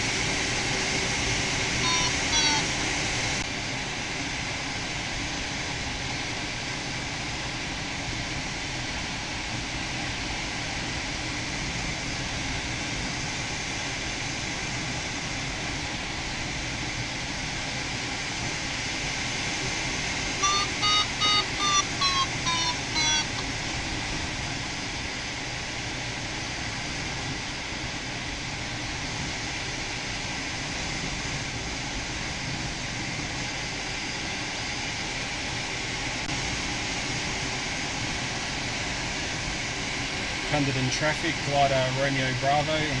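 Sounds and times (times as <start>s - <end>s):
airflow rushing around cockpit: 0.0s - 43.0s
variometer short beeps: 1.8s - 2.7s, 20.4s - 23.5s.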